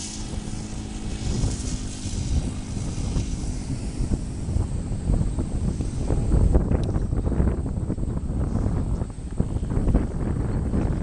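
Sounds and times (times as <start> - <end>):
model aircraft engine idling: 0.0 - 7.6
wind noise on microphone: 0.0 - 11.0.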